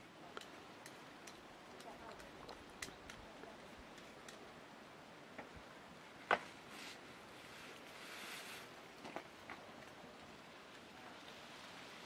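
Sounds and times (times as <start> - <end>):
soft rustle: 6.4 - 12.0.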